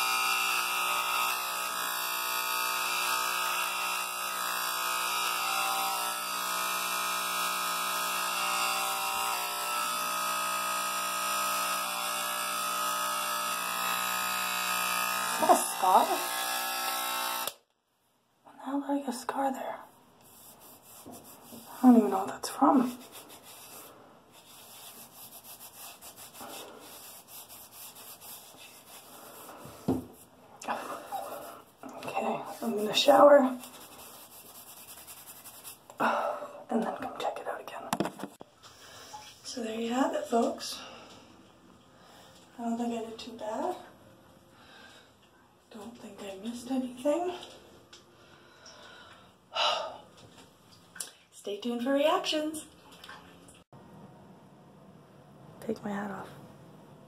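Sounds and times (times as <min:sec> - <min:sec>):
electric hair clippers buzzing: 0:00.0 - 0:17.7
hand rubbing stubbly scalp: 0:20.2 - 0:31.8, 0:32.6 - 0:35.9.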